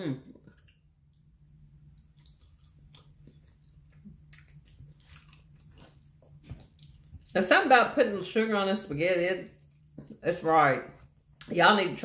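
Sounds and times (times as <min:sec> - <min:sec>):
low steady hum: 0:00.0 - 0:12.0
chewing spaghetti: 0:00.2 - 0:07.5.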